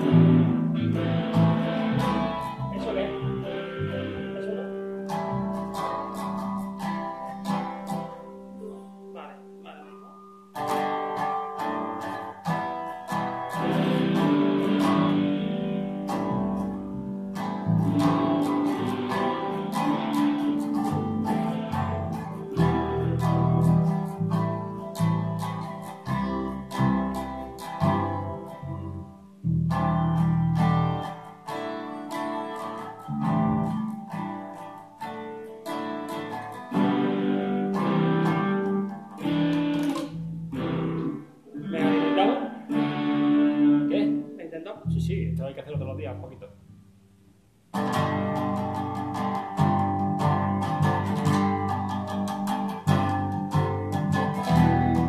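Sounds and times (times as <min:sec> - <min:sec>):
low bass notes: 0:00.0 - 0:07.1, 0:13.6 - 0:31.1, 0:43.7 - 0:46.7, 0:47.9 - 0:55.0
guitar strumming and picking: 0:00.0 - 0:55.0.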